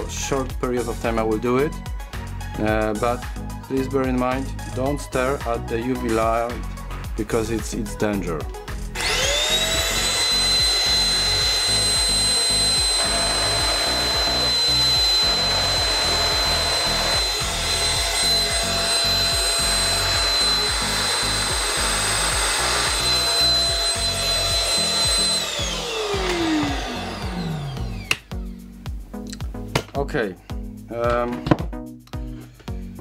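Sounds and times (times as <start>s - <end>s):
handheld vacuum cleaner whining: 8.9s - 28.5s.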